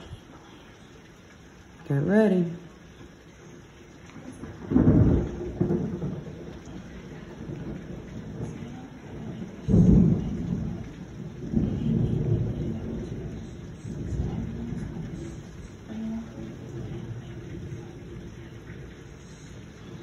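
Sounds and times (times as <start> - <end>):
steady rain: 0.0 - 20.0
thunder clap and rumbling: 4.3 - 20.0.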